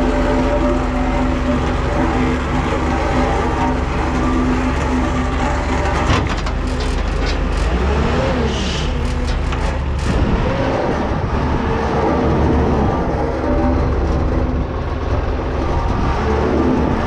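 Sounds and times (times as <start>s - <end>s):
diesel engine running: 0.0s - 17.0s
metal clanks and knocks: 3.5s - 7.9s.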